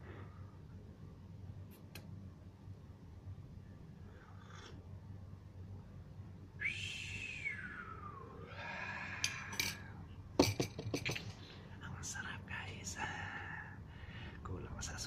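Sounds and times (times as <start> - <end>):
long rising and falling call: 6.6 - 9.2.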